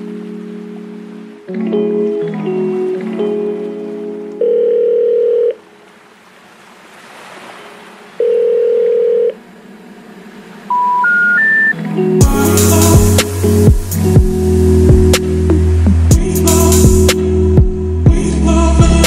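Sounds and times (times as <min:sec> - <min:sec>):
music: 0:00.0 - 0:04.7, 0:11.6 - 0:19.0
long flat beep: 0:10.7 - 0:11.8
short rising beeps: 0:10.7 - 0:11.8.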